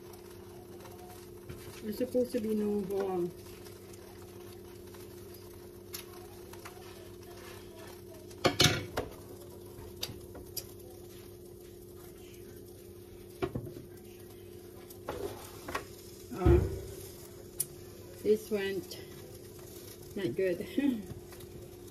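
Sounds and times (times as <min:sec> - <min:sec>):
dishes knocking and clinking: 0:08.4 - 0:09.1.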